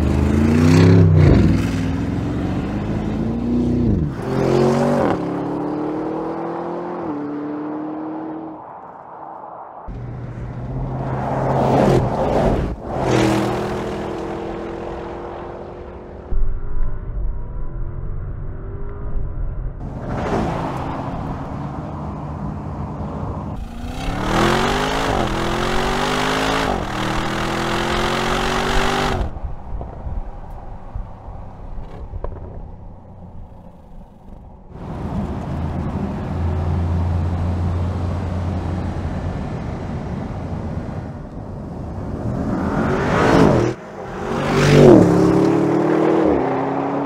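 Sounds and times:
road noise: 0.0 - 47.0
car engine accelerating hard: 23.6 - 29.4
car rushing past: 41.9 - 47.0.

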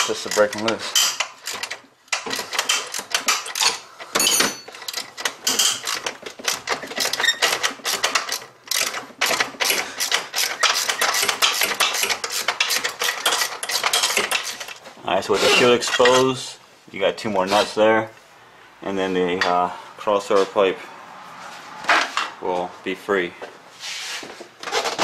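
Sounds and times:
metal tools clinking: 0.0 - 14.8, 15.4 - 16.4.

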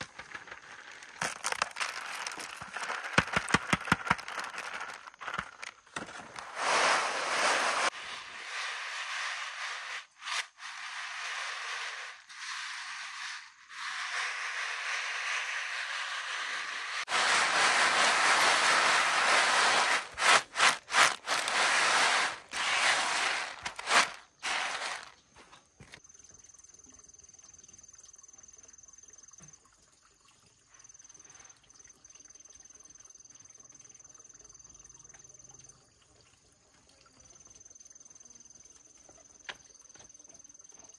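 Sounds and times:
seeds rattling in a bamboo tray: 0.0 - 25.6.

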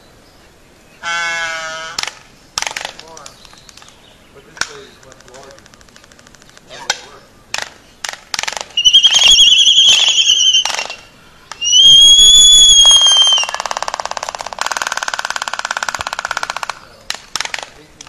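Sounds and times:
albatross whistled calls: 8.8 - 13.8.

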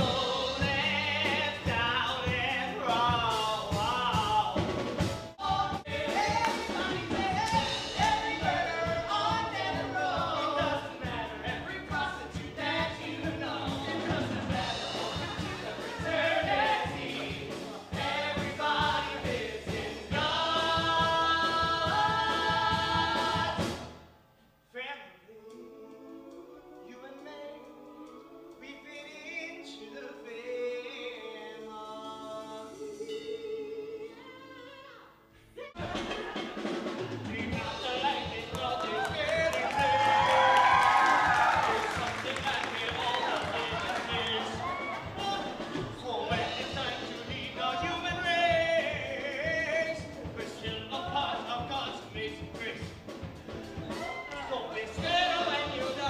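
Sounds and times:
voices singing: 0.0 - 23.8, 25.2 - 52.8, 53.6 - 56.0
band accompaniment with steady beat: 0.0 - 24.0, 35.8 - 56.0.

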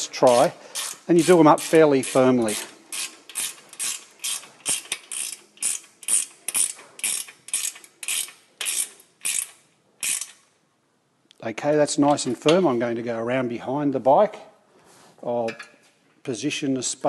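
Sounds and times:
socket ratchet clicking: 2.5 - 10.4.

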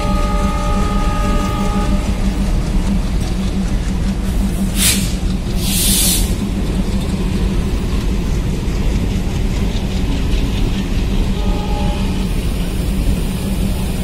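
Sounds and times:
train wheels rumbling on rails: 0.0 - 14.0
hissing air bursts: 4.6 - 6.4.

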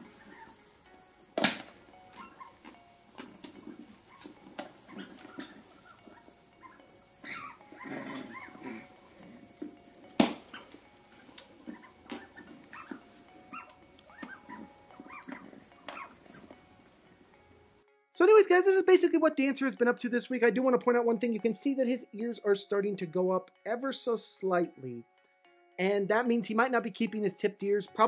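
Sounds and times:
puppy whining and yipping: 0.0 - 0.9, 2.1 - 9.7, 10.4 - 16.5
squeaky toy squeaks: 4.8 - 8.9, 11.8 - 16.2.

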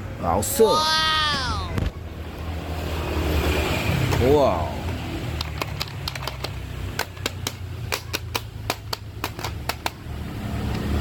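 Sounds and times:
plastic toys clicking together: 5.3 - 10.0.

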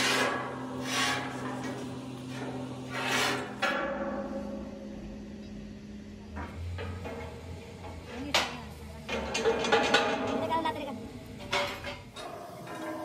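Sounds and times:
steel pipe scraping on metal: 0.0 - 4.6
metal clank: 0.0 - 10.8, 11.4 - 13.0
steady low hum: 0.0 - 13.0.

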